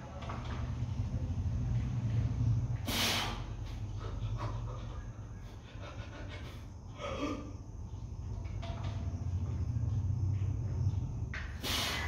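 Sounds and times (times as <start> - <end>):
steady low hum: 0.0 - 12.0
man exhaling forcefully: 2.8 - 3.5, 11.6 - 12.0.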